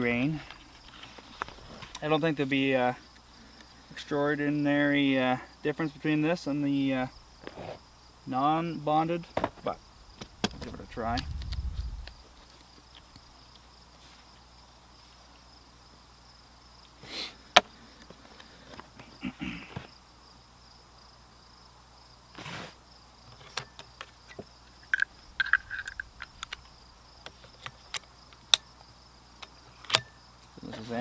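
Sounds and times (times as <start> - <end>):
insects chirring: 0.0 - 31.0
clicks of handled rifle cartridges: 23.3 - 28.7, 29.4 - 30.1.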